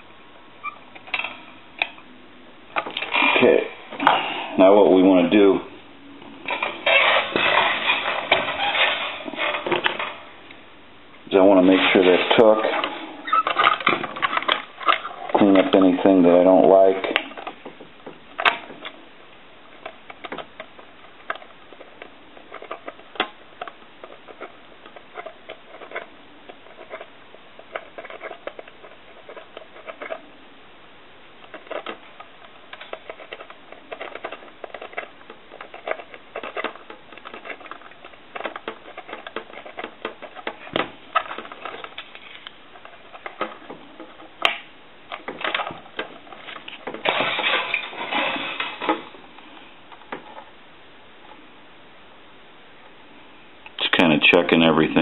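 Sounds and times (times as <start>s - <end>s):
hand tools clicking and scratching: 19.8s - 30.3s, 31.4s - 50.5s.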